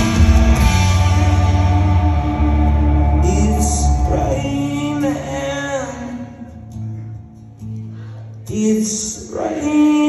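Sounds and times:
live rock band: 0.0s - 9.8s
person singing: 0.9s - 6.8s.

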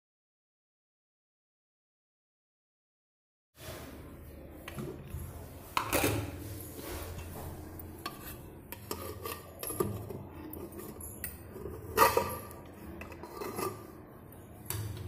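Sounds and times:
metal cookware clinking: 5.8s - 14.0s.

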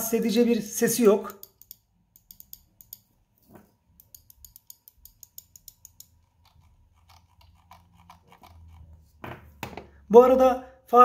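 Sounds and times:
mouse buttons clicking: 1.2s - 3.1s, 3.9s - 8.6s.

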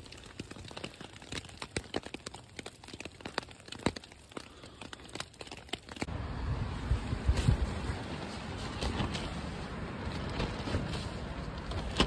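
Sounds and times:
sharp ticks and snaps: 0.0s - 6.1s
tent fabric crinkling: 6.9s - 12.0s.

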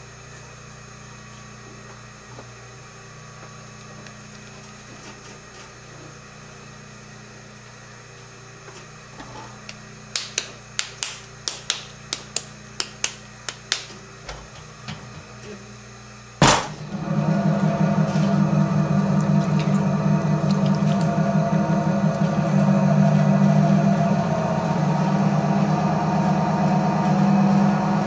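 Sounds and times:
steady low hum: 0.0s - 28.0s
loud thud: 16.4s - 16.8s.

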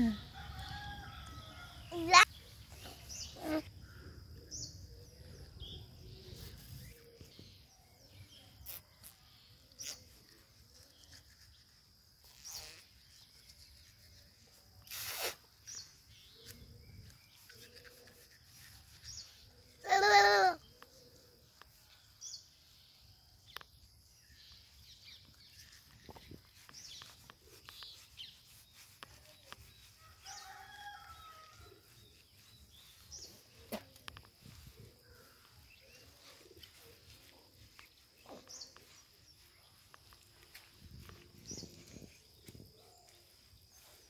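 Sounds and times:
short bird chirps: 1.2s - 23.6s.

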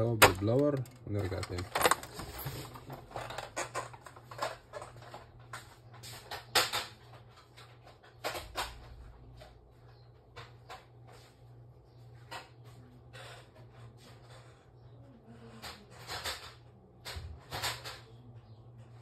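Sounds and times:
objects clicking and knocking: 0.0s - 9.5s, 15.6s - 18.3s.

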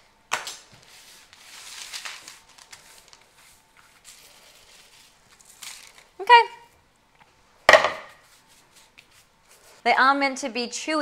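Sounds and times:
oats and nuts pattering on paper: 0.4s - 6.2s.

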